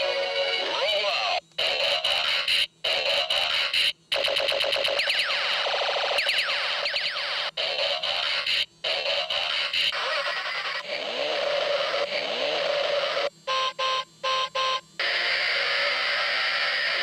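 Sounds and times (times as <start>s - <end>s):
toy electronic buzz with sliding tones: 1.6s - 17.0s
short electronic beeps: 13.5s - 14.8s.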